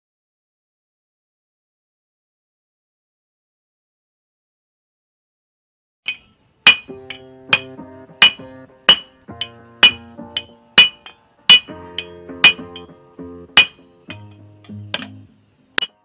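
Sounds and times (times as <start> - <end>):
hammer ringing on anvil: 6.1 - 13.0, 13.6 - 16.0
guitar music: 6.7 - 16.0.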